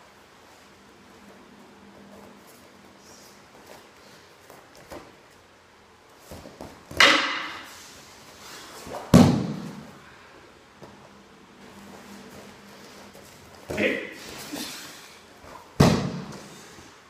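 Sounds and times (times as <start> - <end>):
body thrown onto mat: 9.0 - 9.9, 15.7 - 16.5
loud impacts: 9.1 - 10.0, 15.7 - 16.6.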